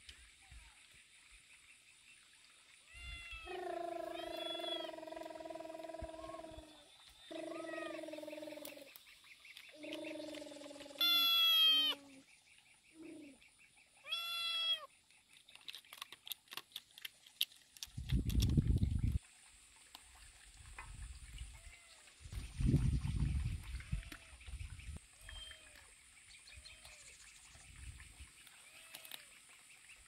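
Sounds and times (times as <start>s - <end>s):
drawn-out animal calls: 3.1s - 9.0s, 9.6s - 12.2s, 14.1s - 14.9s.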